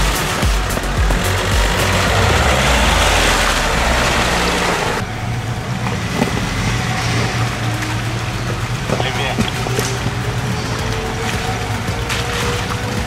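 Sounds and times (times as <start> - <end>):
engine running hard: 0.0 - 13.0
loud rushing noise: 0.0 - 13.0.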